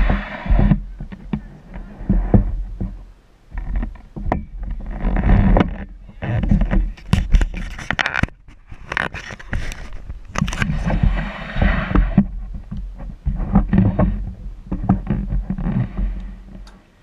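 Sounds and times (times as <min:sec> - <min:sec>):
wind rumble on microphone: 0:00.0 - 0:16.7
knocks and scrapes: 0:00.0 - 0:16.8
camera handling noise: 0:07.0 - 0:10.7.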